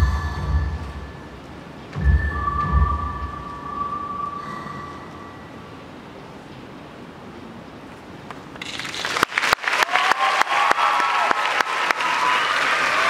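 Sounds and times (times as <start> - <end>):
audience applause: 8.6 - 13.0.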